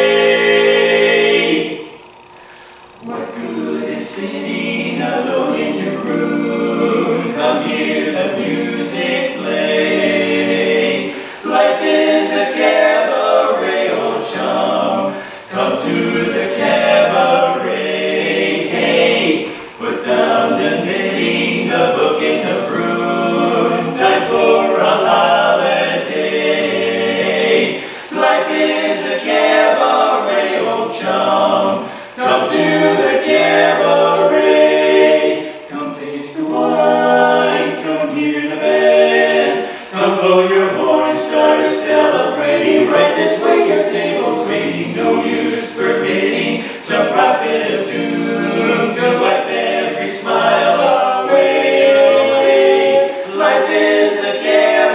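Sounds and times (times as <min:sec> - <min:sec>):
male quartet singing a cappella: 0:00.0 - 0:54.9
singers breathing: 0:02.3 - 0:03.0, 0:11.1 - 0:11.5, 0:15.1 - 0:15.5, 0:19.4 - 0:19.8, 0:27.7 - 0:28.2, 0:31.8 - 0:32.2, 0:39.6 - 0:40.0, 0:46.5 - 0:46.9.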